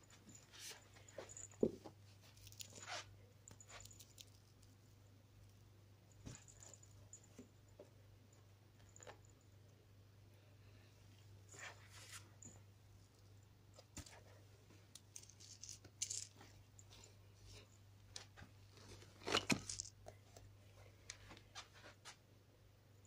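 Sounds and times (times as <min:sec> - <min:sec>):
toys rustling in plastic basket: 0:19.0 - 0:19.9
toys clattering: 0:19.2 - 0:20.0.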